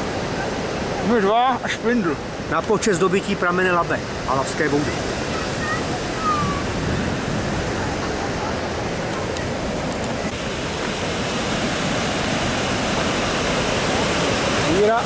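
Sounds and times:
water rushing over a weir: 0.0 - 15.0.

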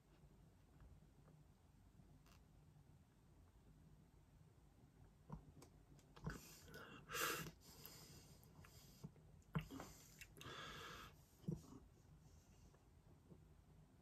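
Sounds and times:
breathing: 6.3 - 11.7.

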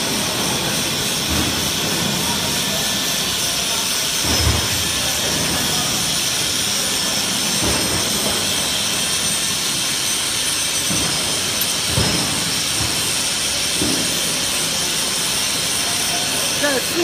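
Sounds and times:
factory machinery running: 0.0 - 17.0.

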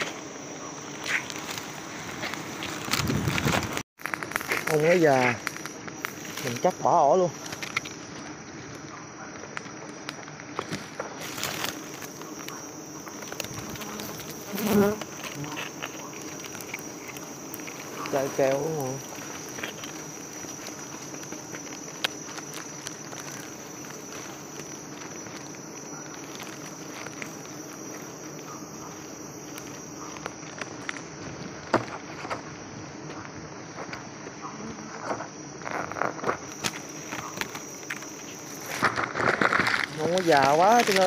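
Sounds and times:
high insect trill: 0.0 - 41.0
honeybees buzzing: 0.0 - 41.0
twigs snapping and leaves rustling: 0.8 - 32.6, 35.6 - 41.0
bee buzzing past microphone: 11.3 - 30.2.

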